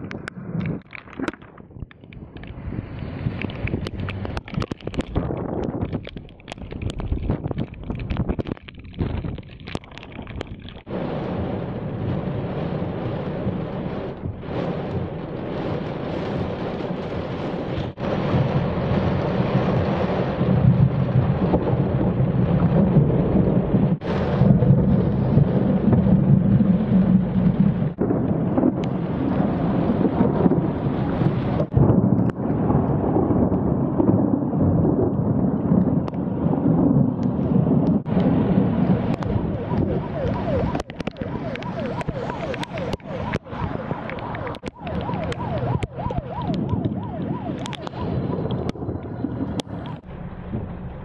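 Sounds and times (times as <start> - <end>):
rain pouring: 0.0 - 51.0
low thunder rumbling: 1.6 - 51.0.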